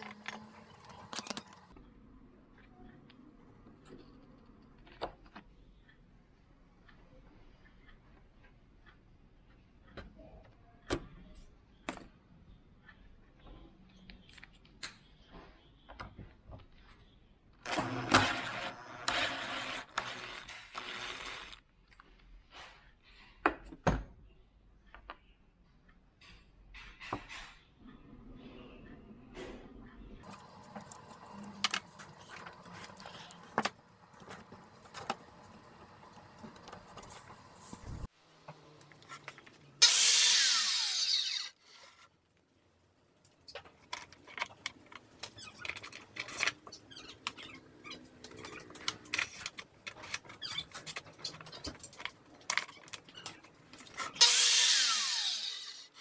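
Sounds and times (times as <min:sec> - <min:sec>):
circular saw whine: 0:54.2 - 0:55.9.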